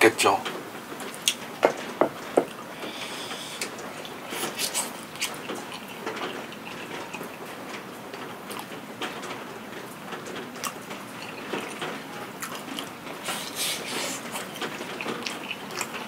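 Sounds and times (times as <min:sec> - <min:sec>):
steady falling rain: 0:00.0 - 0:16.0
person chewing crunchy food: 0:02.4 - 0:07.5, 0:10.6 - 0:16.0.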